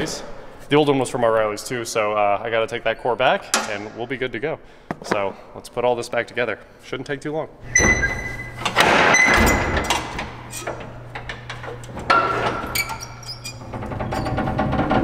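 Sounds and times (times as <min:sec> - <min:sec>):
metal clunks and squeaks: 0:07.6 - 0:15.0.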